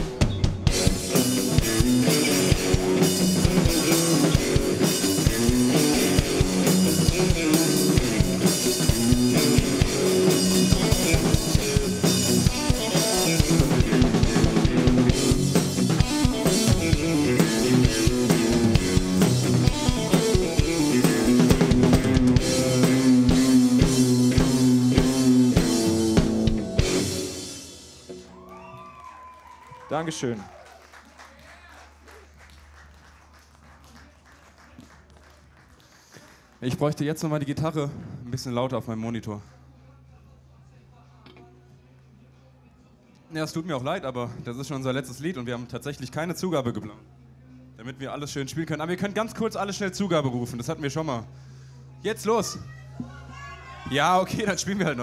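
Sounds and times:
drum kit steady beat: 0.0s - 28.2s
electric guitar: 0.0s - 29.2s.

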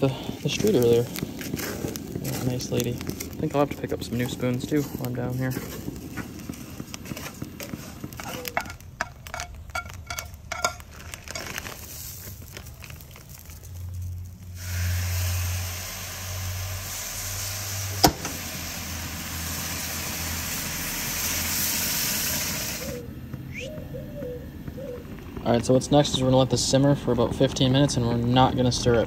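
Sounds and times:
pot sizzling and hissing: 0.0s - 23.1s
wooden spoon scraping rice in pot: 0.3s - 11.8s
liquid poured onto hot rice: 8.5s - 23.0s.

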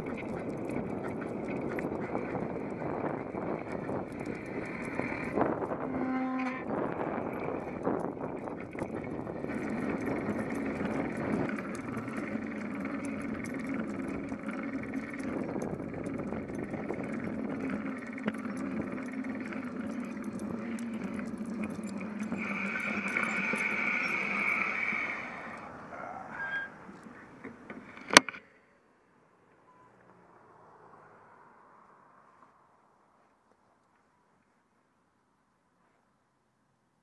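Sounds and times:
bicycle rattles and clicks: 0.0s - 25.8s
bicycle rolling on concrete: 0.0s - 28.1s.

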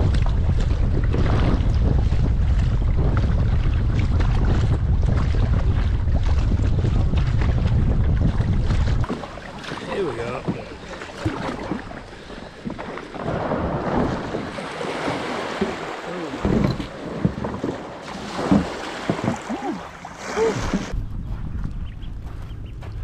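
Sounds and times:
paddle splashing in water: 0.0s - 21.0s
wind buffeting microphone: 0.0s - 23.0s.

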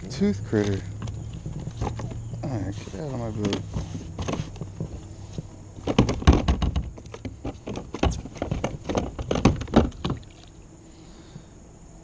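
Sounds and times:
knocks and thumps on plastic kayak: 3.4s - 10.5s.

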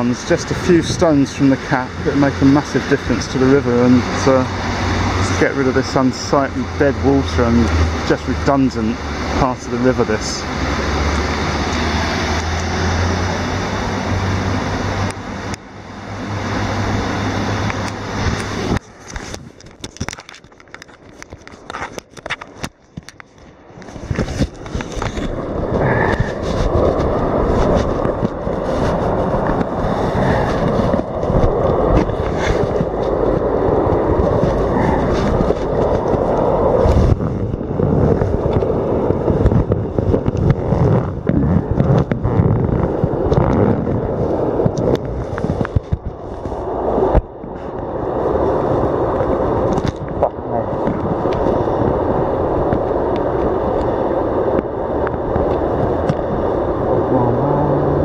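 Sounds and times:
rushing water over weir: 0.0s - 58.0s
microphone handling noise: 17.7s - 58.0s.

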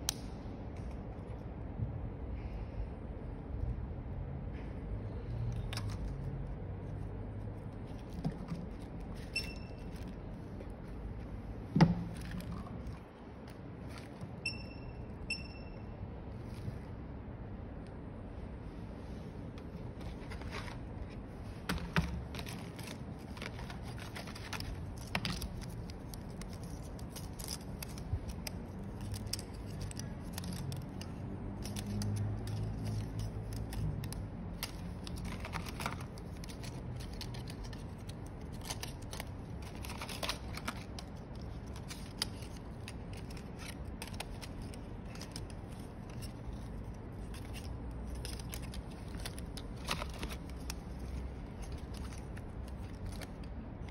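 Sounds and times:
clicks and scrapes of plastic parts: 19.7s - 53.9s.

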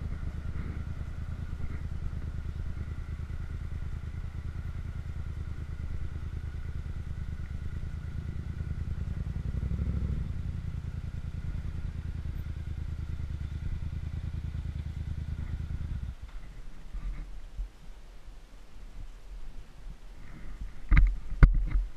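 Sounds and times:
motorcycle engine running: 0.0s - 17.2s
motorcycle engine idling: 0.0s - 17.3s.

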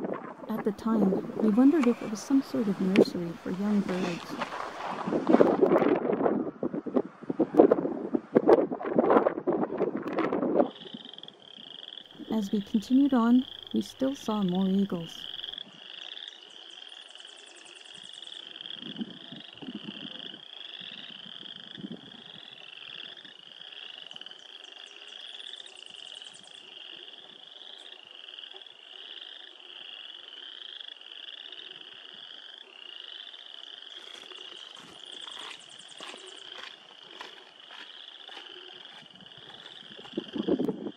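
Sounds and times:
frogs calling: 0.5s - 5.0s, 10.6s - 40.9s.

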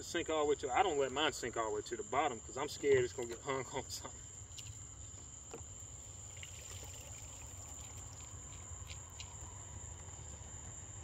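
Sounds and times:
crickets chirring: 0.0s - 11.0s
water trickling and dripping: 5.9s - 9.5s.

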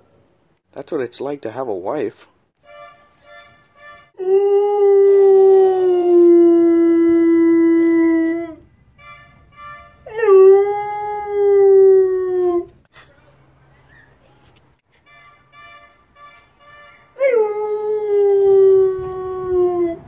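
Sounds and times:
husky howling: 4.2s - 8.6s, 17.2s - 20.0s
short pitched toots: 15.0s - 17.1s.

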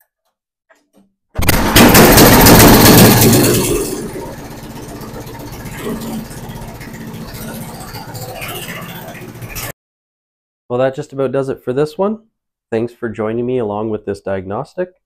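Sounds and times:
snowblower engine running: 1.4s - 9.7s.

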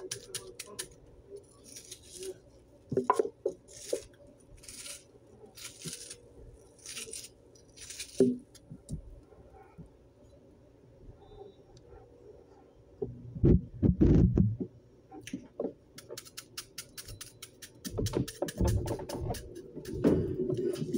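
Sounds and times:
knife slicing onion: 0.0s - 2.4s, 3.2s - 8.6s, 16.0s - 20.9s.

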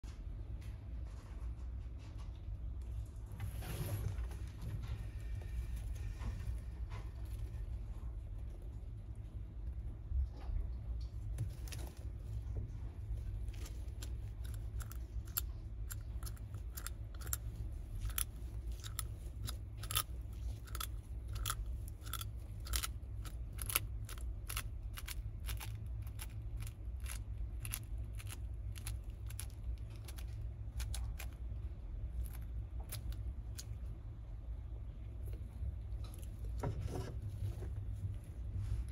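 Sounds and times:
steady low hum: 0.0s - 38.9s
lizard crunching eggs: 13.1s - 33.9s.

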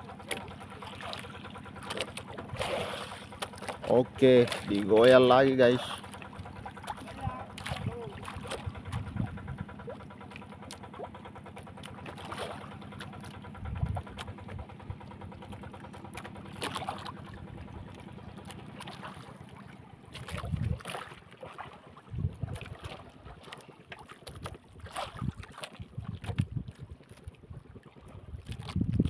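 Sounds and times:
boat engine hum: 0.0s - 29.0s
wind buffeting microphone: 7.1s - 9.8s, 13.6s - 14.7s, 20.3s - 20.9s, 22.0s - 22.8s, 25.1s - 29.0s.

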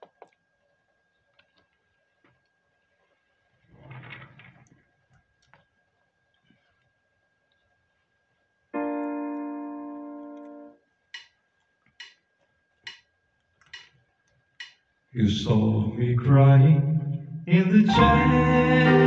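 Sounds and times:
held keyboard note: 8.8s - 10.8s, 17.8s - 19.0s.

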